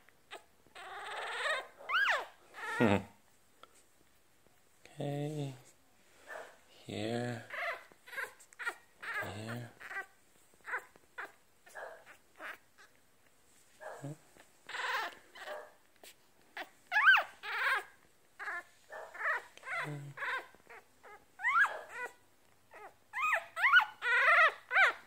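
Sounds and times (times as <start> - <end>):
puppies squeaking and whimpering: 0.3 - 3.0, 7.4 - 13.0, 14.3 - 25.0.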